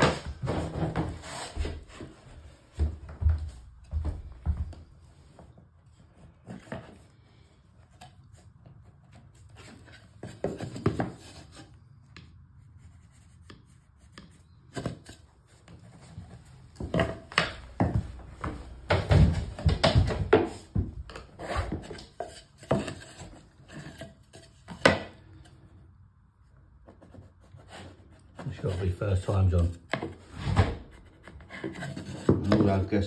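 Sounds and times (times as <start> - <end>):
floorboards scraping: 0.0 - 7.4, 15.8 - 25.5, 27.6 - 32.9.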